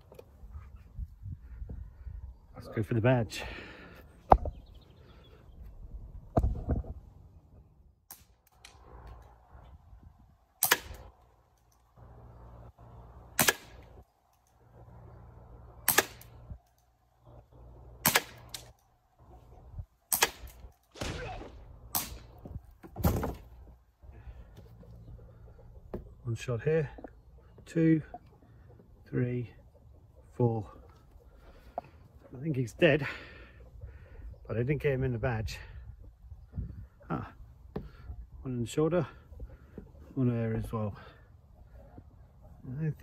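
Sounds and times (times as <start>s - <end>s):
airsoft revolver shots: 10.6s - 11.1s, 13.4s - 13.9s, 15.8s - 16.4s, 18.0s - 18.7s, 20.1s - 22.3s.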